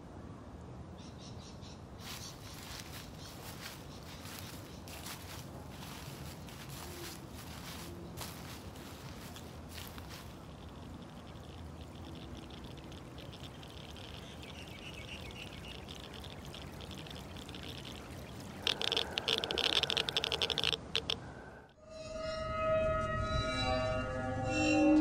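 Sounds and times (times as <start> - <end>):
geiger counter clicking: 8.2 - 21.2.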